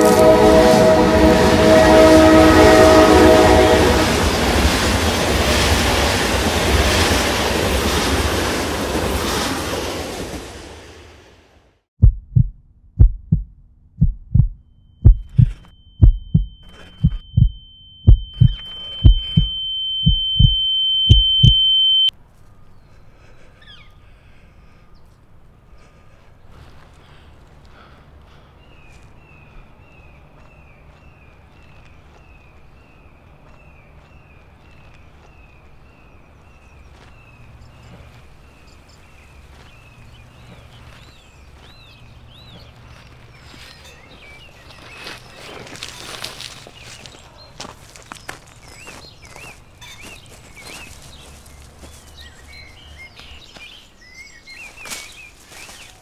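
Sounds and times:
train horn: 0:00.0 - 0:04.4
train rumbling past: 0:00.0 - 0:11.4
heartbeat thumping: 0:12.0 - 0:22.1
thin high ringing tone: 0:14.7 - 0:22.1.

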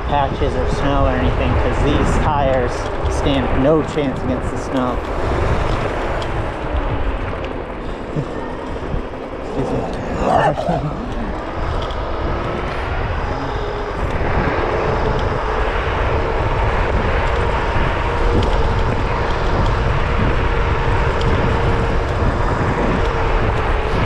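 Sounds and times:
electric scooter whine: 0:00.0 - 0:24.0
wind buffeting microphone: 0:00.0 - 0:24.0.

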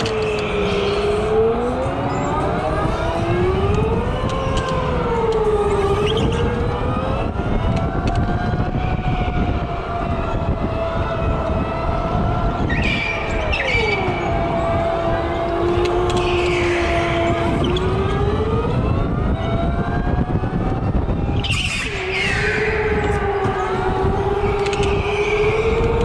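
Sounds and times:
electric go-kart motor whining: 0:00.0 - 0:26.0
higher motor whine: 0:09.4 - 0:21.2, 0:21.8 - 0:26.0.

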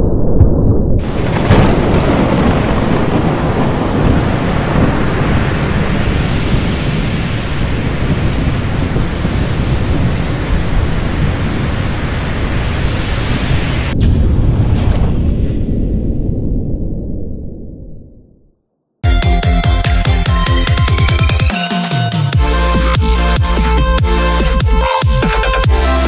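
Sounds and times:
thunder rumbling: 0:00.0 - 0:18.5
rain rushing: 0:01.0 - 0:14.0.

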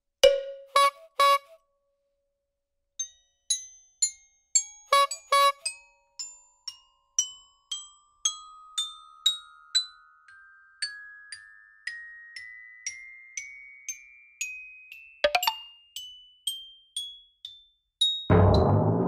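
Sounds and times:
bell-like music notes: 0:05.4 - 0:18.9.

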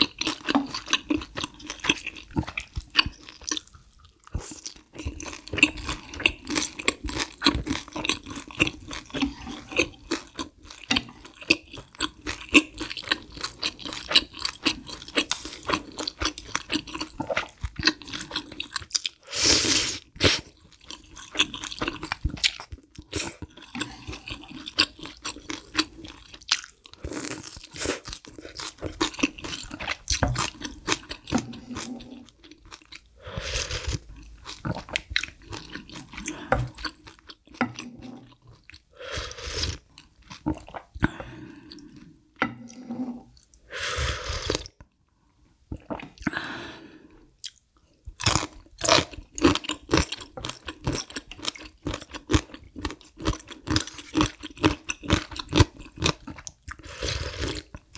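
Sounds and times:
chewing with crunchy clicks: 0:00.0 - 0:19.2, 0:20.0 - 0:38.9, 0:39.7 - 0:43.6, 0:47.4 - 0:57.9
slurping broth and noodles: 0:19.2 - 0:20.6, 0:29.2 - 0:32.4, 0:33.2 - 0:38.4, 0:39.0 - 0:44.7, 0:56.7 - 0:57.7.

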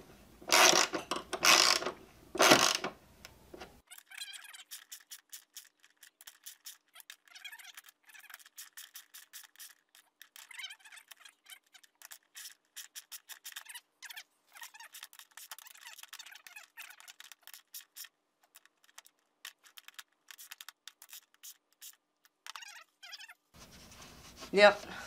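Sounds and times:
hand ratchet clicking: 0:00.5 - 0:02.9.

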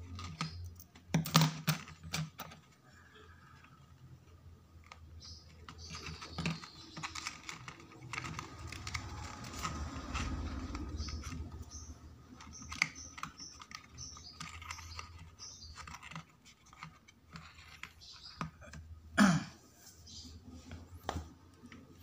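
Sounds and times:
card crinkling and clicking: 0:04.8 - 0:11.6.

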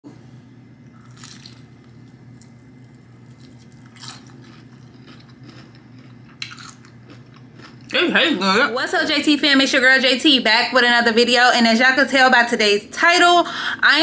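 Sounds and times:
steady low hum: 0:00.1 - 0:14.0
faint chewing: 0:01.0 - 0:08.0.

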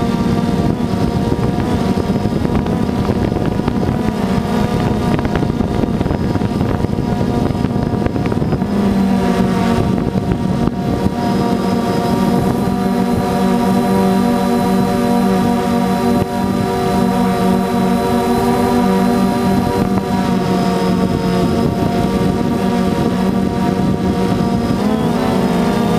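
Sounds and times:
air rushing over microphone: 0:00.0 - 0:25.9
drone propellers droning: 0:00.0 - 0:25.9.

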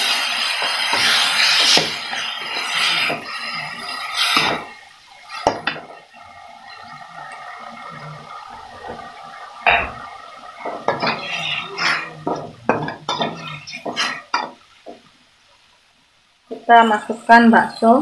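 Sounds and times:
food sizzling: 0:00.0 - 0:18.0
metal spatula scraping a wok: 0:10.9 - 0:14.3.

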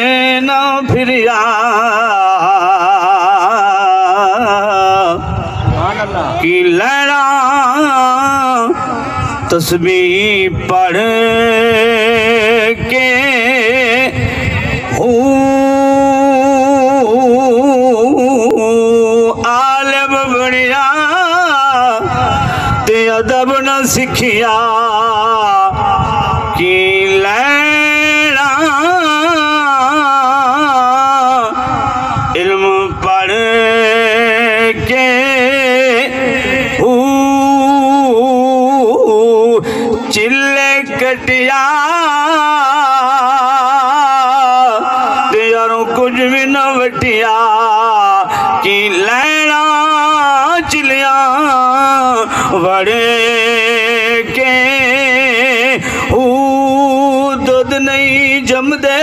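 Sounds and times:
man chanting: 0:00.0 - 0:59.0
man singing with vibrato: 0:00.0 - 0:59.0.

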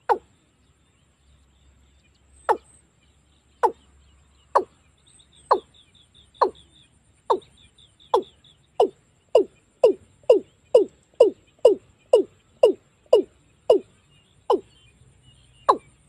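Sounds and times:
bird deep kok calls: 0:00.0 - 0:00.3, 0:02.4 - 0:02.7, 0:03.6 - 0:03.9, 0:04.5 - 0:04.8, 0:05.4 - 0:06.7, 0:07.3 - 0:13.9, 0:14.5 - 0:14.7, 0:15.6 - 0:16.0.

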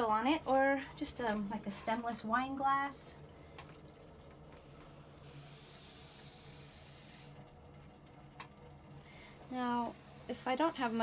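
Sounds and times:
potter's wheel humming: 0:06.2 - 0:11.0.

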